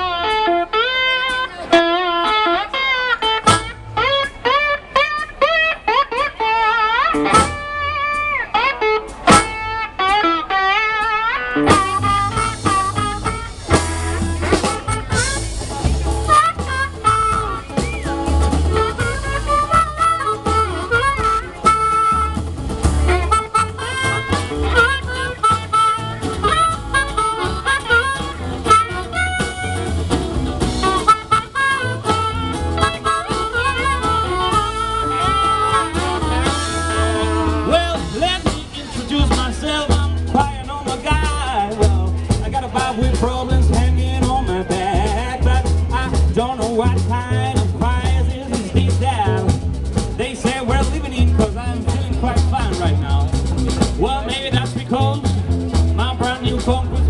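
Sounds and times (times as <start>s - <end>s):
drum kit: 0.0s - 57.0s
electric and acoustic guitars: 0.0s - 57.0s
upright bass: 0.0s - 57.0s
harmonica: 10.0s - 40.5s
person singing: 33.2s - 49.6s, 56.0s - 57.0s.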